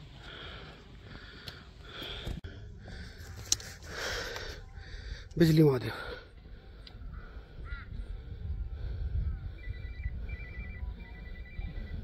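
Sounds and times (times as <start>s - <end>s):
wind rumble on microphone: 6.4s - 12.0s.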